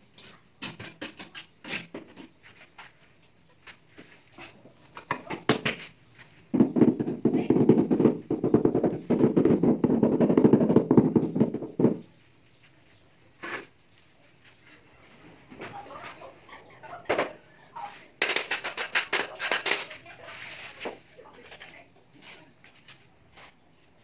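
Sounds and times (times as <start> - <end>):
rubber mallet tapping floor tile: 6.6 - 12.0.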